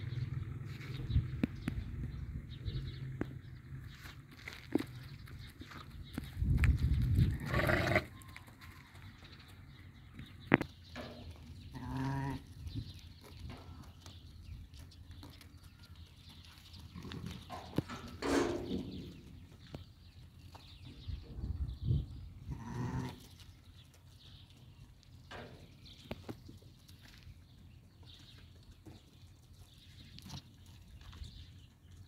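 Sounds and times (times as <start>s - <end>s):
sheep bleating: 7.4s - 8.2s, 11.7s - 12.5s, 22.5s - 23.3s.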